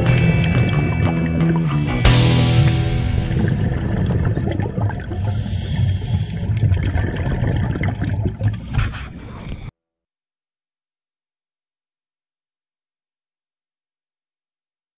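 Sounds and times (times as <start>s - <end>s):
underwater sloshing and bubbling: 0.0s - 9.7s.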